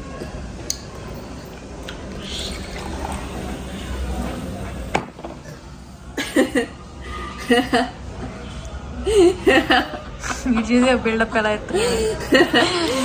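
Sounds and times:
drink fizzing: 0:01.7 - 0:05.2
cola pouring into glass: 0:01.9 - 0:04.9.

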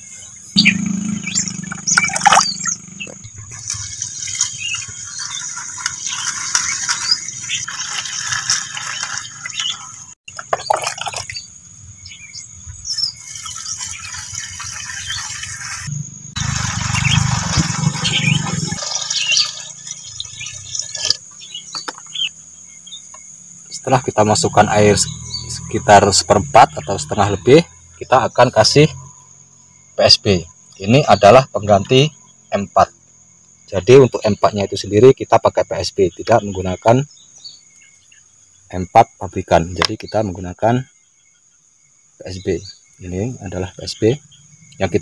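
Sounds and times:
water pouring into plastic jug: 0:01.7 - 0:02.4, 0:10.5 - 0:11.4.

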